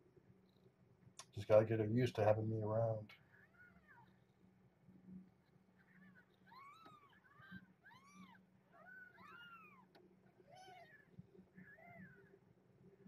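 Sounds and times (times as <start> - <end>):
kittens mewing faintly: 5.8 - 12.3.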